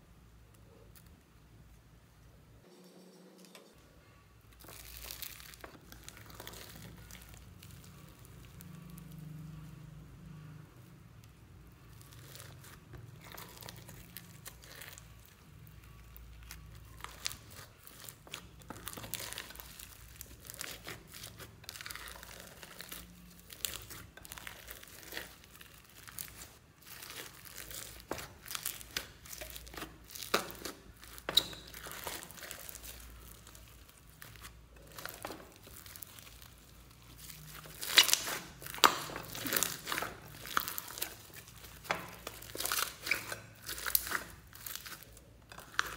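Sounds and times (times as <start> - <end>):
slime squished by hand: 11.8 - 45.9.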